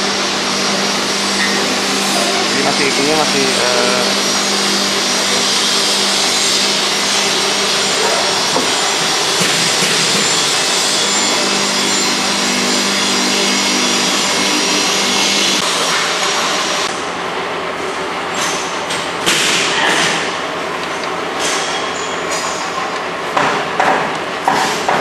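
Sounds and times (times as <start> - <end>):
electric motor humming: 0.0 - 15.8.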